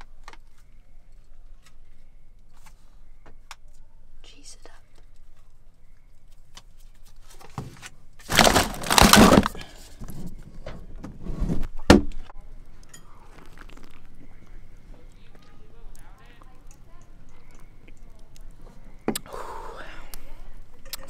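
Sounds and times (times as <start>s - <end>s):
cans and packages clattering: 7.4s - 10.3s.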